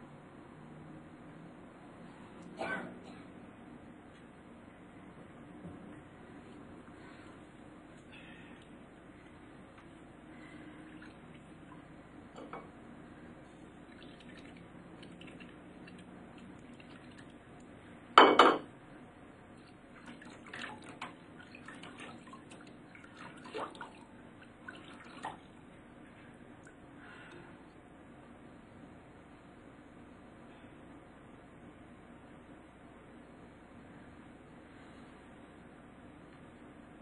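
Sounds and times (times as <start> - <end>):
kitchenware taps and clinks: 18.2 - 18.7.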